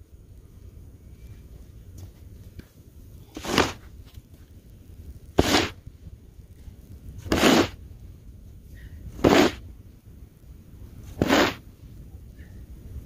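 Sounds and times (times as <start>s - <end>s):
snow shovel scraping snow: 3.4s - 3.8s, 5.4s - 5.8s, 7.2s - 7.8s, 9.2s - 9.6s, 11.2s - 11.6s.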